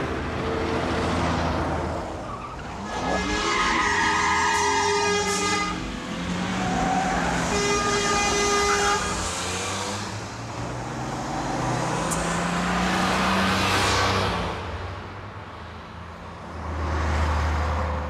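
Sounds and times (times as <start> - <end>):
engine and road noise: 0.0 - 18.0
car horns honking: 2.8 - 6.0, 6.9 - 9.4.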